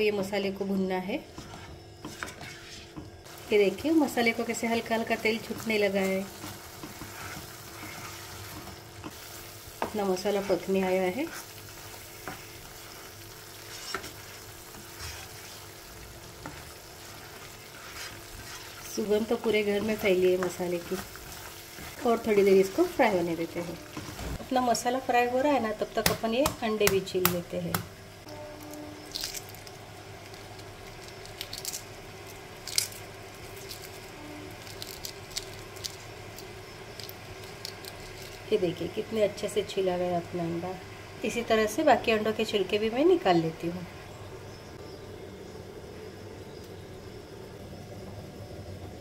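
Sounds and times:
faint steady hum: 0:00.0 - 0:49.0
paste sizzling in oil: 0:01.2 - 0:26.8
spatula stirring paste: 0:01.3 - 0:03.0, 0:05.4 - 0:15.8, 0:16.4 - 0:22.6
eggshell cracking: 0:29.1 - 0:38.5.

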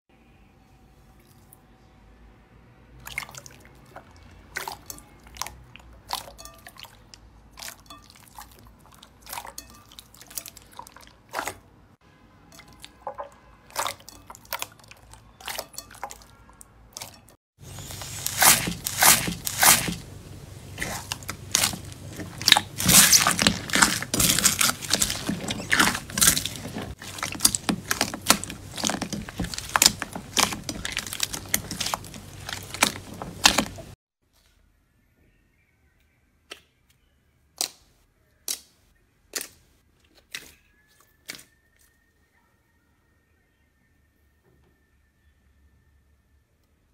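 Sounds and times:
crunchy slime crackling: 0:17.0 - 0:34.0.

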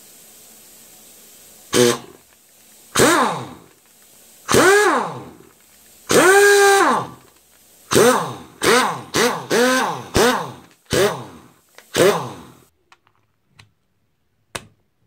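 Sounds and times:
air impact wrench whining: 0:01.7 - 0:02.2, 0:02.9 - 0:03.7, 0:04.5 - 0:05.5, 0:06.1 - 0:07.3, 0:07.9 - 0:12.7.

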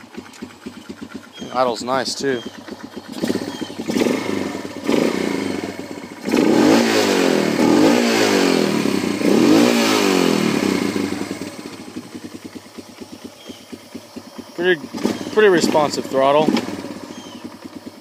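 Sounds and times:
single-cylinder engine revving: 0:00.0 - 0:18.0.

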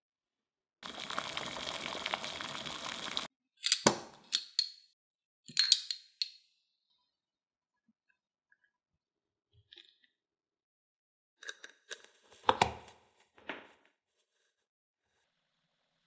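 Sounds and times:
glass jars clinking against tongs: 0:03.6 - 0:04.9, 0:05.5 - 0:06.4.

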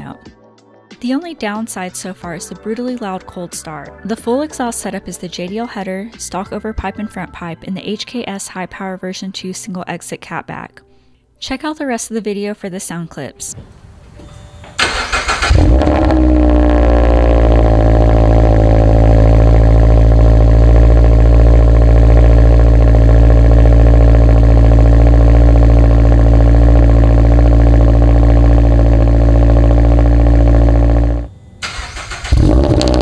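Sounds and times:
starter cranking: 0:14.8 - 0:16.3, 0:29.7 - 0:33.0
car engine idling: 0:14.8 - 0:33.0.

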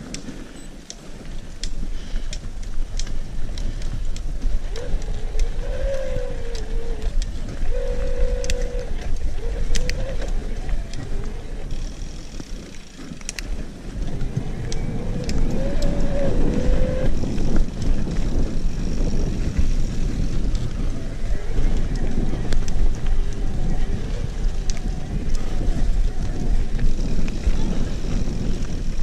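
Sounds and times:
bike rattling over roots: 0:00.0 - 0:29.0
bike tyres rumbling on dirt: 0:00.0 - 0:29.0
wind: 0:00.0 - 0:29.0.

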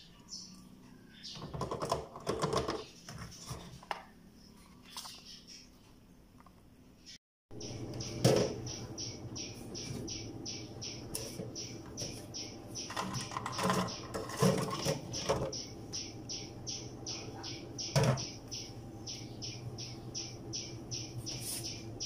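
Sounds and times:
high-pitched pulsing chirp: 0:07.5 - 0:22.0.

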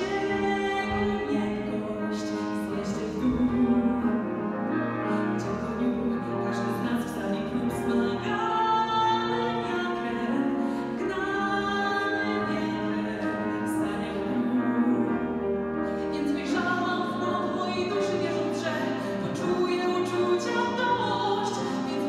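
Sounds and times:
grand piano: 0:00.0 - 0:22.0
woman singing: 0:00.0 - 0:22.0.

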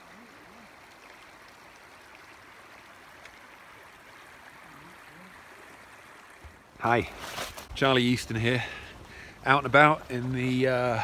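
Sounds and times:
water running over stones: 0:00.0 - 0:11.0.

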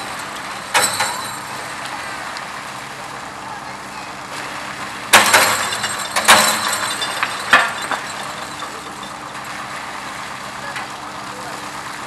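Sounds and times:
heavy vehicle engine running: 0:00.0 - 0:12.0
loud knocks and clatters: 0:05.1 - 0:09.2.

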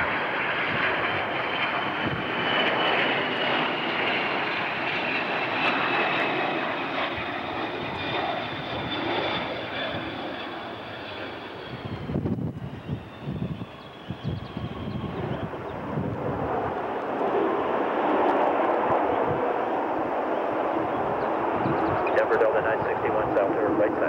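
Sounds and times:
jet engines rushing and whining: 0:00.0 - 0:24.0.

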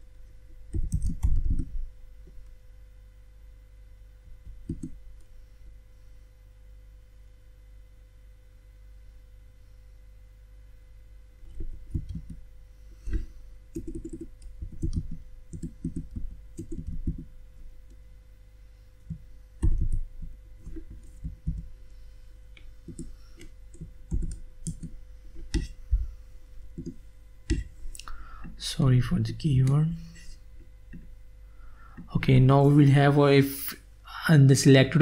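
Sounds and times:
typing on computer keyboard: 0:00.7 - 0:01.7, 0:04.6 - 0:05.0, 0:13.7 - 0:17.3, 0:23.7 - 0:24.9.

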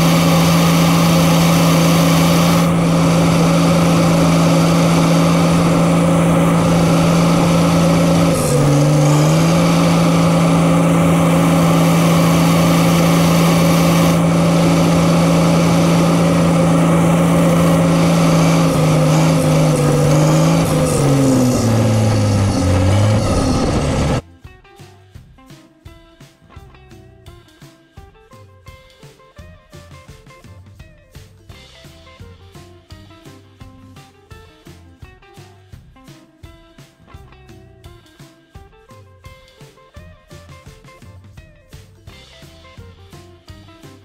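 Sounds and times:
diesel engine running: 0:00.0 - 0:24.2.

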